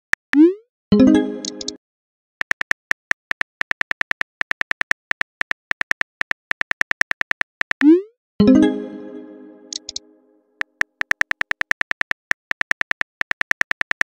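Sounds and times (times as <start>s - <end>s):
notification chime: 1.0s - 1.8s, 8.4s - 10.3s
phone keyboard clicks: 2.5s - 7.8s, 9.7s - 10.0s, 10.6s - 14.0s.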